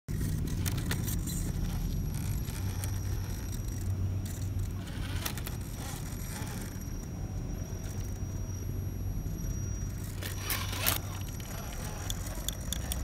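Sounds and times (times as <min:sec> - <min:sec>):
tyres scraping on rock: 0:00.1 - 0:07.0, 0:10.0 - 0:13.0
electric motor humming and whining: 0:00.1 - 0:13.0.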